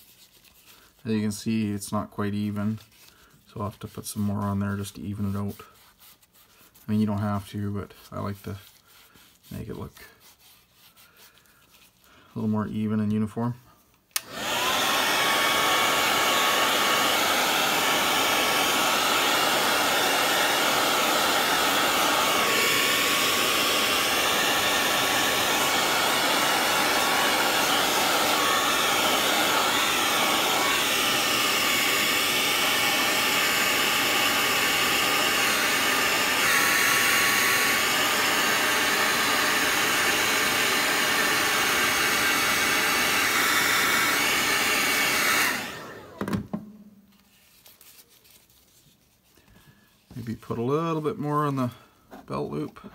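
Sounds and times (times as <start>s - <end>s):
hair dryer blowing: 14.1s - 47.1s.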